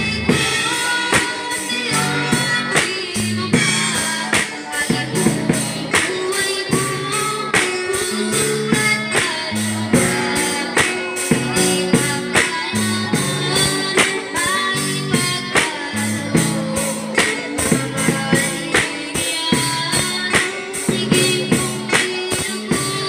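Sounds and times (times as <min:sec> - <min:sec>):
drum kit beat: 0:00.0 - 0:23.0
girl singing: 0:00.0 - 0:23.0
guitar accompaniment: 0:00.0 - 0:23.0.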